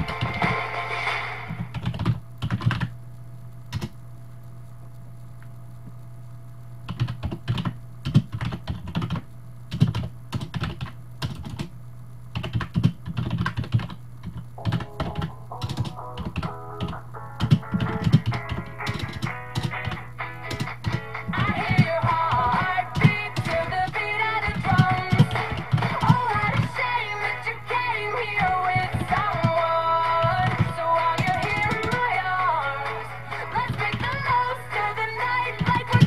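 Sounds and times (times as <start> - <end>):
music: 0.0 - 1.7, 14.6 - 36.0
steady low hum: 0.0 - 36.0.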